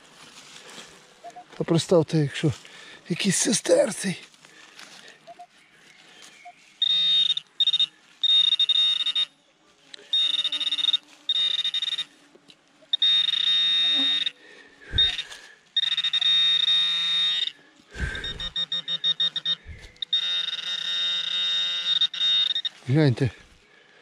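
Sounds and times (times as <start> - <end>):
metal detector rapid beeps: 5.2 - 5.5, 6.4 - 9.4, 10.1 - 12.1, 12.9 - 23.1
metal detector buzzing bursts: 6.8 - 9.4, 10.0 - 12.2, 12.8 - 23.0.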